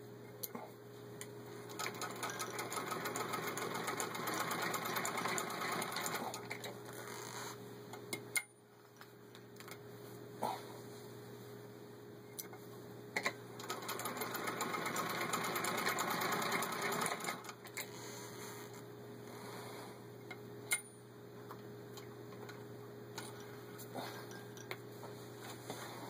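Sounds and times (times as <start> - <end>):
hand-cranked sewing machine clicking: 1.7 - 6.6, 13.6 - 17.6.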